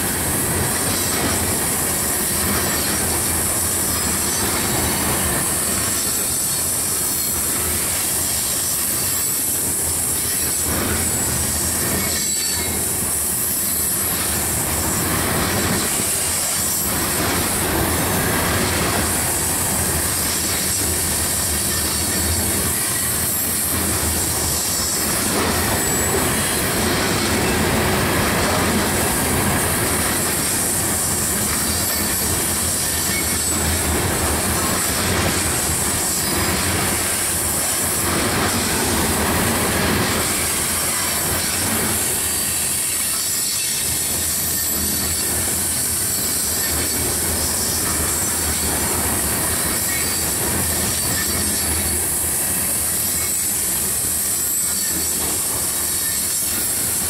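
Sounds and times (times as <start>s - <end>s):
train wheels rumbling on rail: 0.0s - 57.0s
wheel flange squeal: 10.2s - 13.0s, 42.2s - 48.7s.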